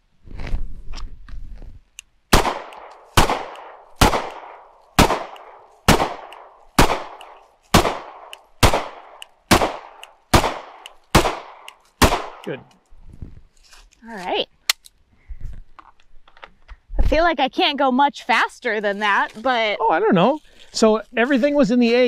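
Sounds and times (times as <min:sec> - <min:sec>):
handgun shots with echo: 0:02.3 - 0:12.4.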